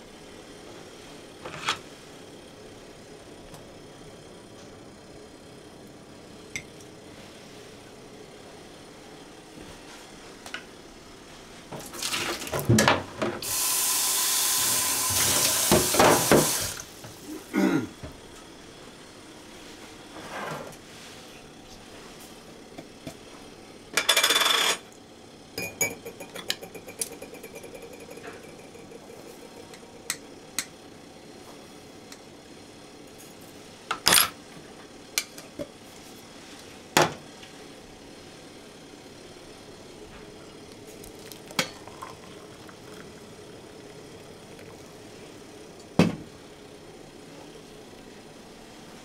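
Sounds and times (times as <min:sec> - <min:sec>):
tap running: 0:13.4 - 0:17.2, 0:25.6 - 0:30.7
dishes and pan clattering: 0:25.6 - 0:29.0
spoon clinking: 0:25.6 - 0:30.2.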